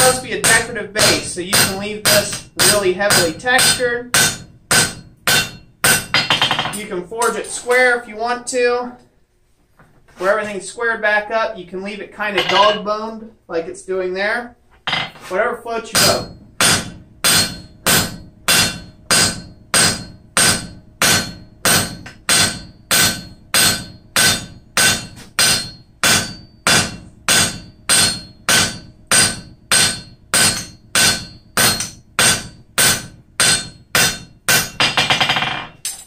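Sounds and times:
hammer striking hot steel on anvil: 0:00.0 - 0:07.3, 0:15.9 - 0:36.0.

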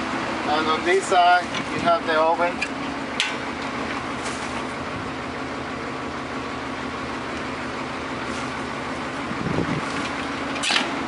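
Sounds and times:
van engine idling: 0:00.0 - 0:11.0.

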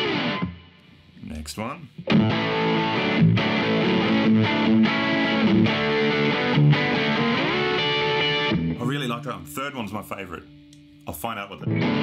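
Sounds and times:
overdriven electric guitar: 0:00.0 - 0:00.7, 0:02.0 - 0:08.9, 0:11.6 - 0:12.0.

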